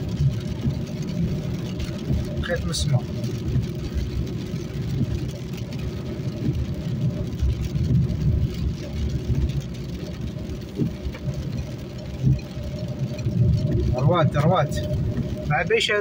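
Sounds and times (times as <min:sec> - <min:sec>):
car driving on wet road: 0:00.0 - 0:16.0.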